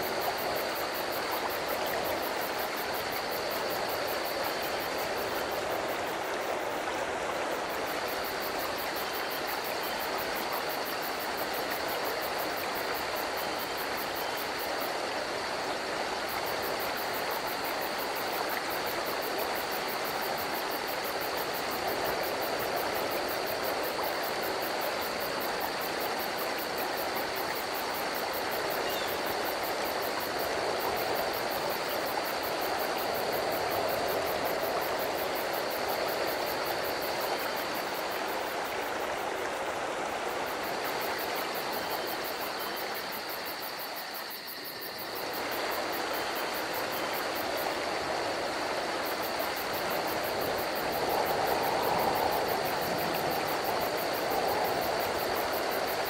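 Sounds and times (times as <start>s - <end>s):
insect trill: 0.0s - 56.0s
stream water flowing: 0.0s - 56.0s.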